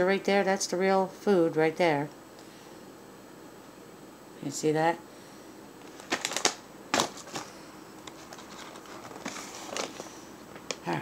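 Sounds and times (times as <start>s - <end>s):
rustling: 5.8s - 10.2s.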